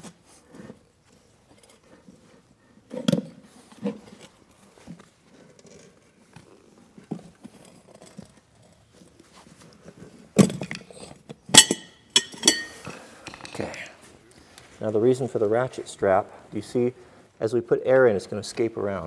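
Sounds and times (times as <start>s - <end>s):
soft handling noises: 0.0s - 11.5s, 12.3s - 19.0s
ringing metal clacks: 11.6s - 12.8s.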